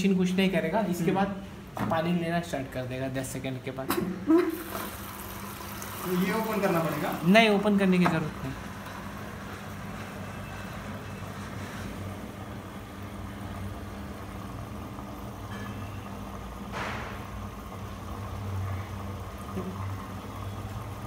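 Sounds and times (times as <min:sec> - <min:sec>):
washing machine hum: 0:00.0 - 0:21.0
water running in: 0:00.3 - 0:10.6.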